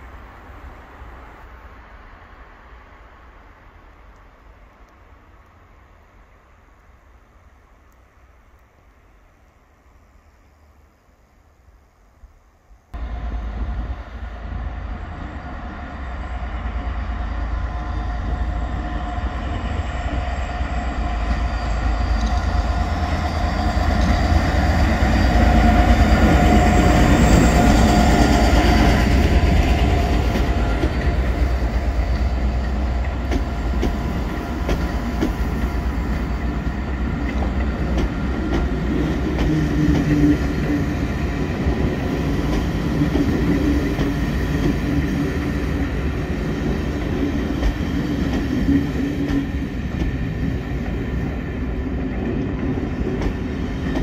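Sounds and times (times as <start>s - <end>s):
diesel locomotive engine: 12.9s - 54.0s
train wheels clicking over rail joints: 22.0s - 54.0s.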